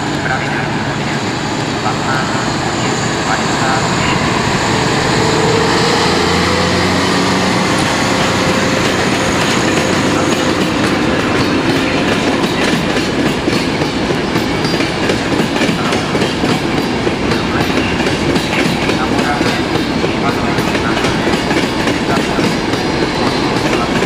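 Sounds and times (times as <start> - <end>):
electric locomotive hum: 0.0 - 24.0.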